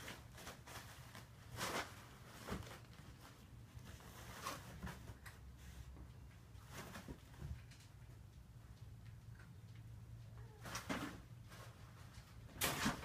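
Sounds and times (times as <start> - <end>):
paper towels rustling: 0.0 - 6.0
faint low hum: 0.0 - 13.0.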